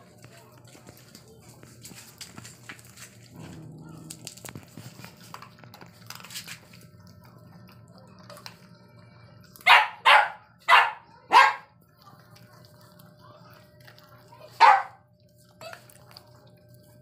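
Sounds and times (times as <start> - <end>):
dogs shuffling and licking: 0.0 - 10.4, 11.5 - 17.0
dog barking: 9.6 - 11.8, 14.6 - 15.0.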